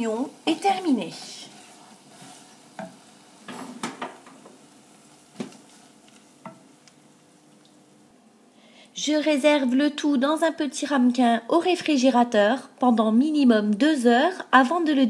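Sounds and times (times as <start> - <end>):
spoon stirring sticky onions: 0.4 - 7.1
spoon knocking against pan: 6.4 - 6.7.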